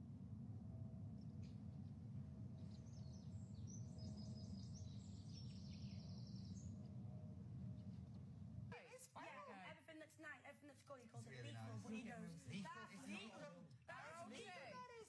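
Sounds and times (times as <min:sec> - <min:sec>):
steady low hum: 0:00.0 - 0:08.8
birdsong with chirps and trill: 0:02.5 - 0:07.0.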